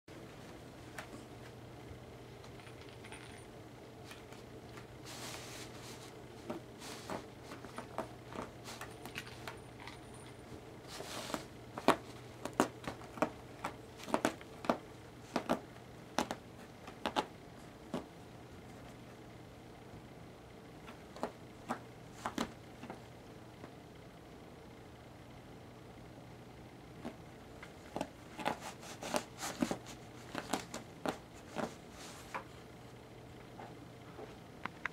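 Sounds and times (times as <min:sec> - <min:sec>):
cat scraping at bath mat: 0:10.9 - 0:15.6, 0:27.9 - 0:32.5
mat clicking and knocking on tile: 0:11.8 - 0:15.6.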